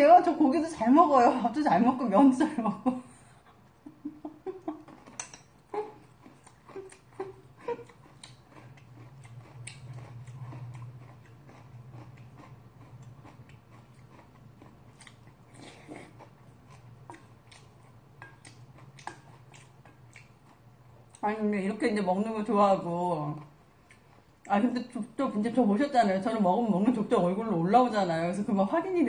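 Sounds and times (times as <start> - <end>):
low steady hum: 0.0 - 29.0
chewing and biting food: 4.6 - 21.2.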